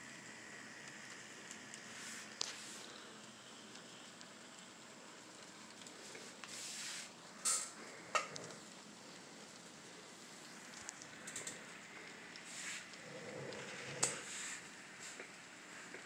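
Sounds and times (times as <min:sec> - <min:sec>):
model locomotive hissing on track: 0:06.1 - 0:07.7.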